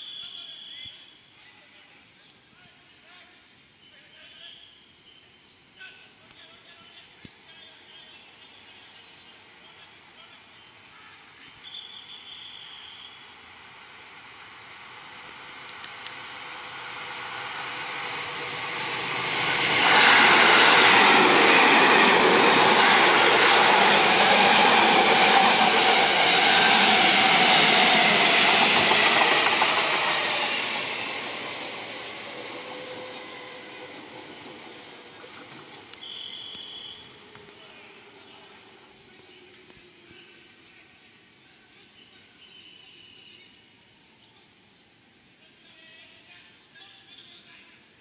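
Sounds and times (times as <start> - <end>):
train wheels on rails: 11.7 - 40.6.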